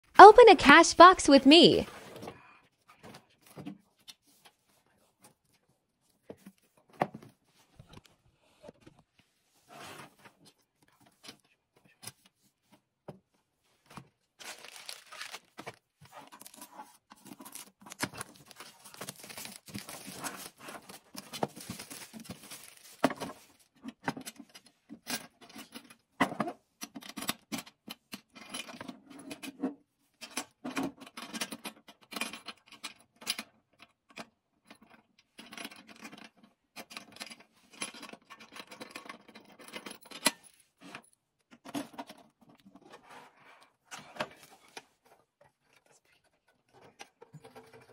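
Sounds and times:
rustling: 14.4s - 15.5s, 18.2s - 23.6s.

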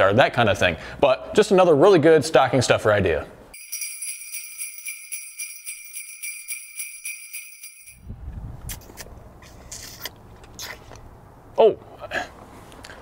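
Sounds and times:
jingle bells shaken: 3.6s - 8.1s.

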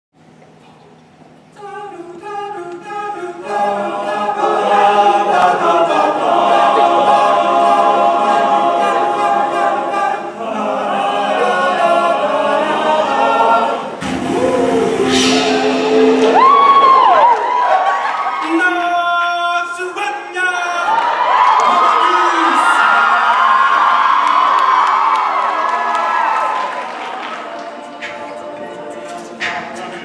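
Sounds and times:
a cappella group singing: 1.5s - 18.0s, 22.8s - 30.0s.

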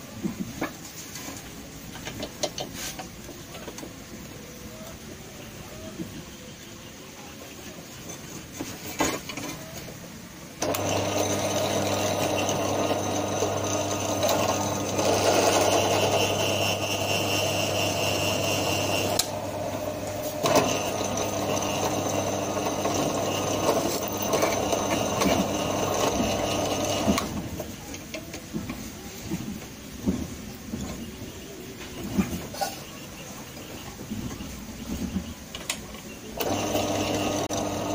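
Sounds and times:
high whine of drilling steel: 10.6s - 27.3s, 36.4s - 37.9s
drill press motor hum: 10.6s - 27.4s, 36.4s - 37.9s.

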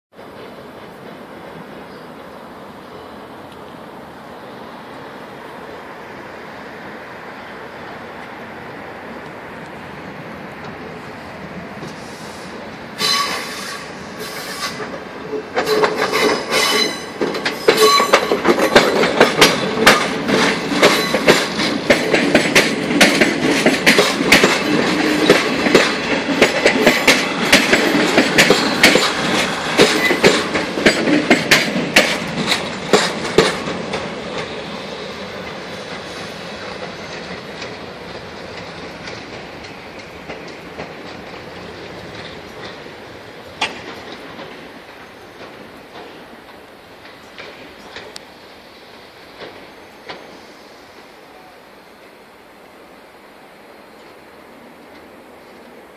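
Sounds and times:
train wheels clicking over rails: 9.1s - 51.2s
wheel squeals: 13.0s - 18.5s.

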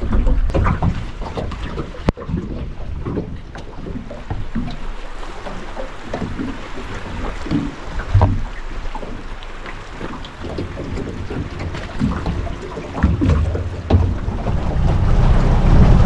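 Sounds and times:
wavelets lapping at waterline: 0.0s - 16.0s
wind buffeting microphone: 10.0s - 16.0s.

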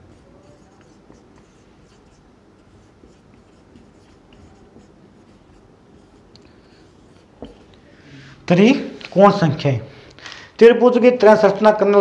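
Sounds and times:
marker writing on whiteboard: 0.0s - 7.8s.

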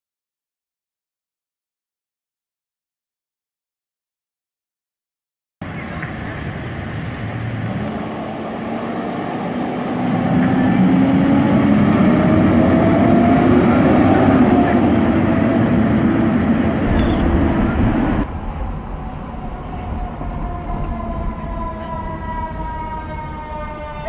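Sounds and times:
fire truck diesel engine accelerating: 5.6s - 24.0s.

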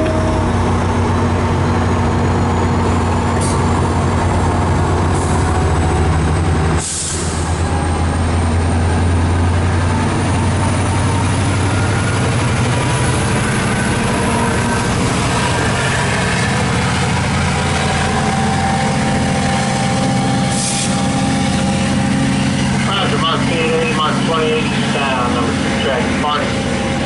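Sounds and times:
diesel locomotive engine drone: 0.0s - 27.0s
air brake hiss: 6.8s - 7.4s, 20.5s - 21.0s.

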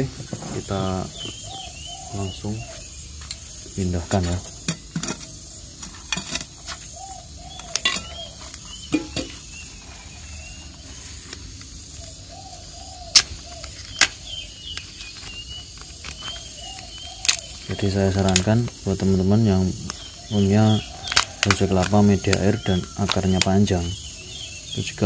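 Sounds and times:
plastic bottle crackling and clicking: 13.1s - 18.8s, 19.8s - 23.6s.

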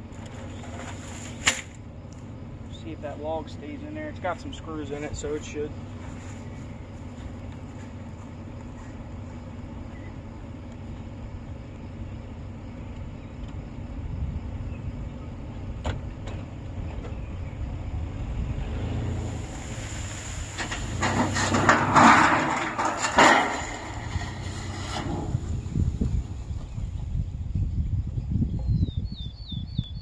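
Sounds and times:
pickup truck engine running: 19.2s - 28.0s.

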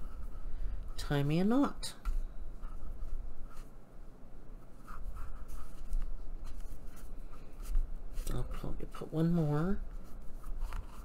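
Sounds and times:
string rubbing against paper: 4.6s - 11.0s.

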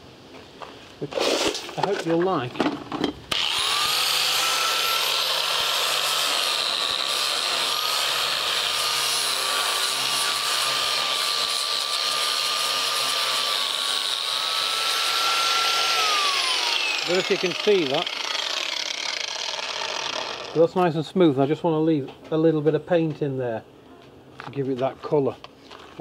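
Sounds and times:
angle grinder sanding wood: 3.3s - 20.8s.

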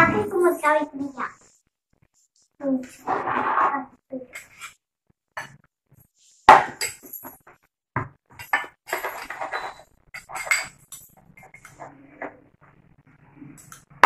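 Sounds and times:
spoon clinking glass bowl: 8.4s - 11.8s.

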